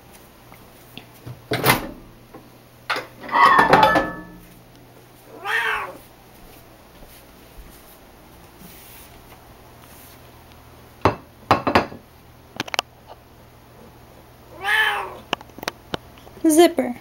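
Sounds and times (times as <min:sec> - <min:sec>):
cat meowing: 0:05.3 - 0:06.0, 0:14.5 - 0:15.3.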